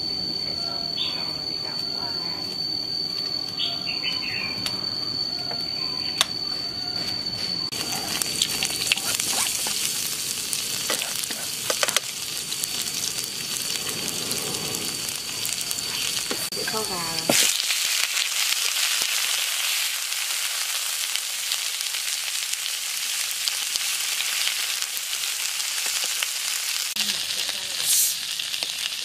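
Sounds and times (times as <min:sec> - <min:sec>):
garlic sizzling in oil: 0:07.7 - 0:29.0.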